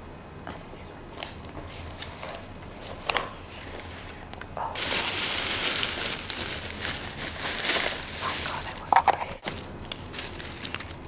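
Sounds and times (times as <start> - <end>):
plastic bag crinkling: 4.8 - 11.0.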